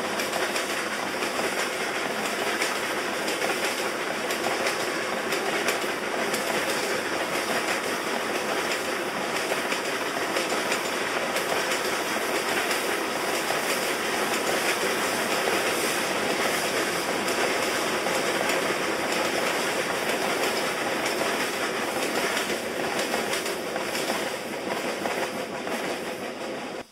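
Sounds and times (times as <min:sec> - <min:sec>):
freight train wheels rumbling: 0:00.0 - 0:26.9.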